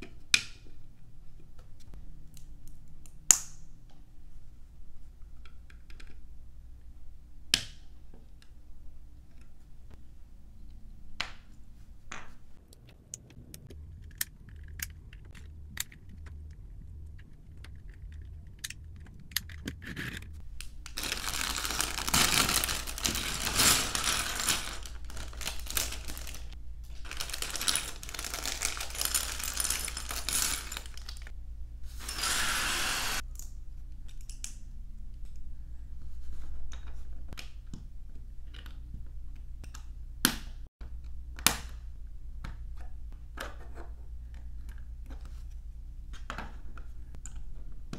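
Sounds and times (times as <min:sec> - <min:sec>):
plastic bags crinkling and tearing: 0:20.6 - 0:31.3.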